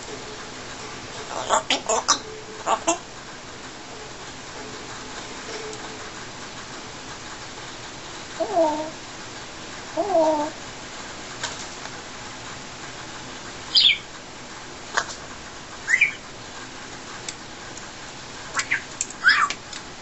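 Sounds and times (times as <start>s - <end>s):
parrot whistled calls: 1.3s - 3.0s, 13.7s - 14.0s, 15.8s - 16.2s, 18.6s - 19.6s.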